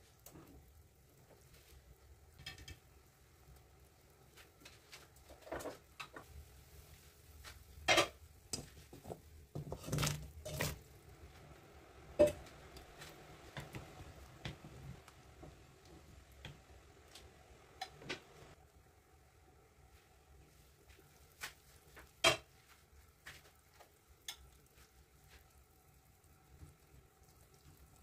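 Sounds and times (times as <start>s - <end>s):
pot and utensils clinking: 12.2s - 13.0s.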